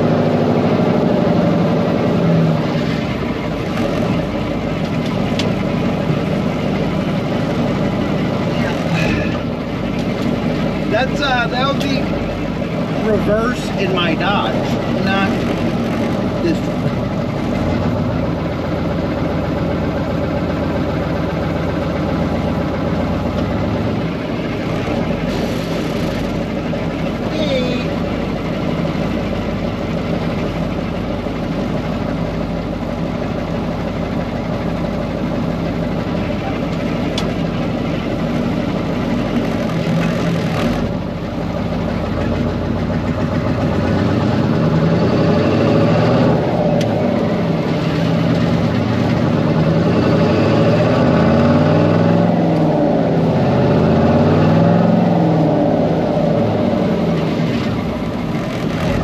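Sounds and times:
diesel truck engine pulling: 0.0s - 59.0s.

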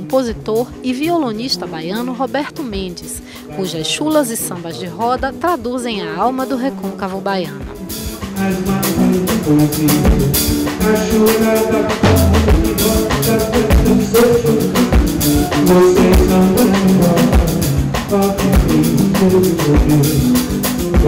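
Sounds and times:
drums and percussion: 7.6s - 21.0s
strummed guitar: 11.6s - 15.9s.

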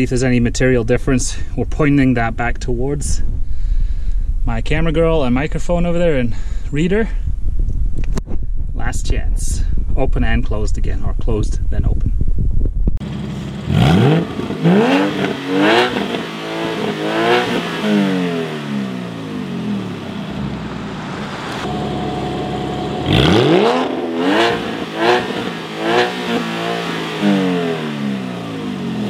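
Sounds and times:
car engine idling: 13.0s - 29.0s
car engine revving in blips: 13.0s - 29.0s.

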